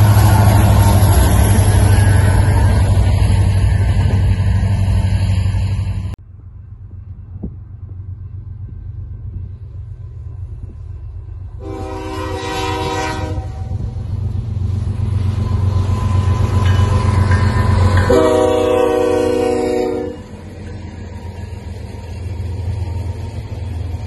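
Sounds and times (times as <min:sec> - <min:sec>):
locomotive engines rumbling: 0:00.0 - 0:24.0
locomotive air horn blasts: 0:11.6 - 0:14.0, 0:18.0 - 0:20.4.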